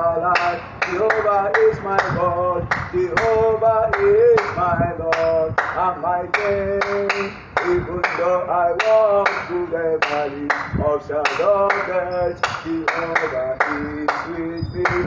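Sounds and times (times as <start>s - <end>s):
man singing: 0.0s - 15.0s
hands clapping: 6.4s - 8.2s, 8.8s - 10.7s, 11.3s - 15.0s.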